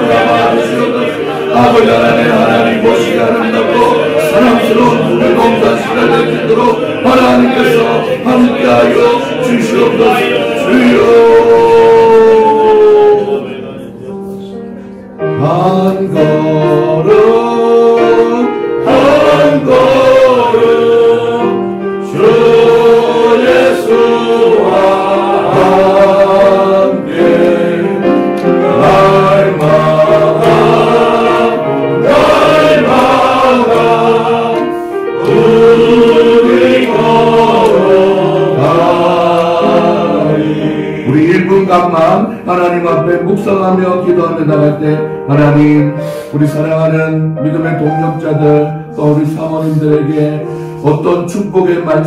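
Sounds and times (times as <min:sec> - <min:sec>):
group singing a hymn: 0:00.0 - 0:52.0.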